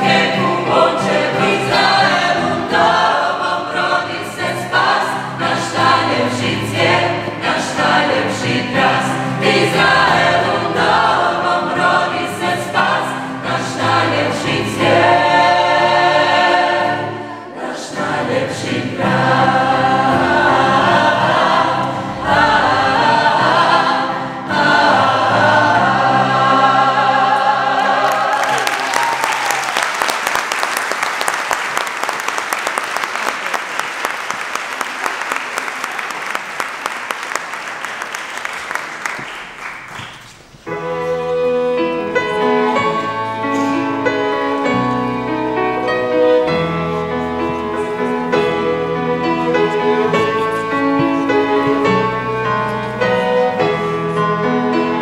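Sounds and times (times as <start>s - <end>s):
mixed choir singing: 0.0s - 29.5s, 40.6s - 55.0s
audience applause: 28.0s - 40.3s.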